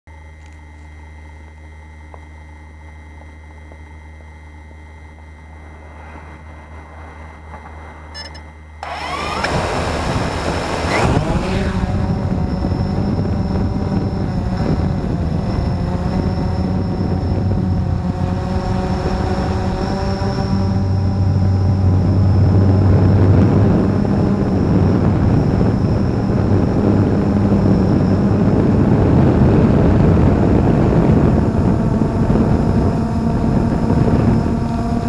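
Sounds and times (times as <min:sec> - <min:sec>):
drone motors buzzing: 0:00.4 - 0:35.0
rushing prop wash: 0:08.8 - 0:12.2.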